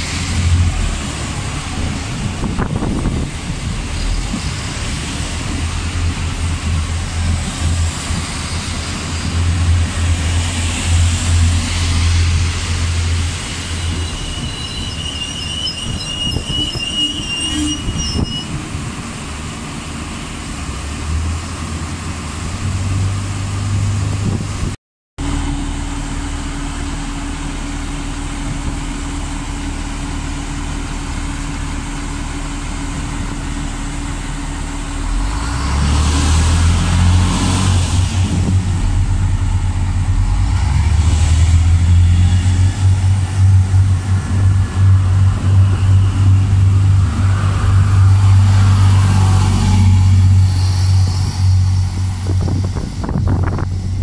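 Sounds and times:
train diesel engines droning: 0.0s - 54.0s.

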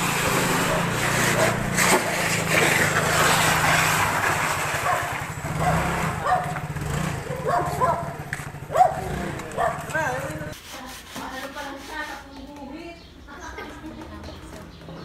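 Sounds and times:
scooter engine running: 0.0s - 10.6s.

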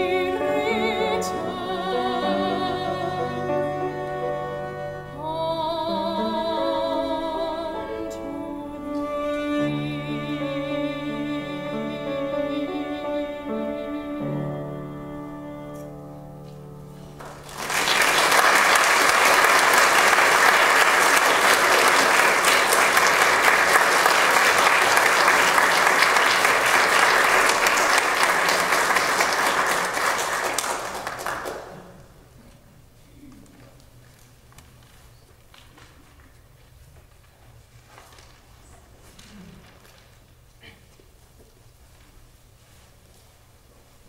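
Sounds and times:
cello and piano notes: 0.0s - 17.4s
audience applause: 17.2s - 32.0s.

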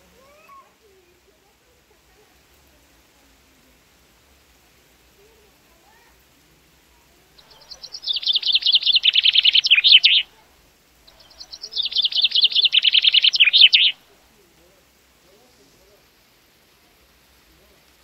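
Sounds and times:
songbird singing trills: 7.4s - 10.4s, 11.1s - 14.0s.

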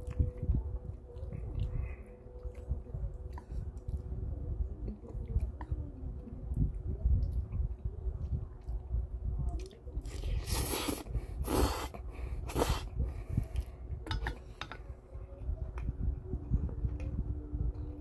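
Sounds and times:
person slurping noodles: 10.1s - 12.9s.

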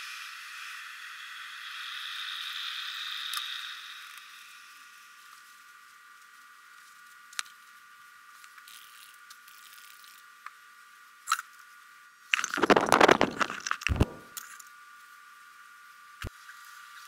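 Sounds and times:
rustling and knocking: 12.6s - 14.3s.

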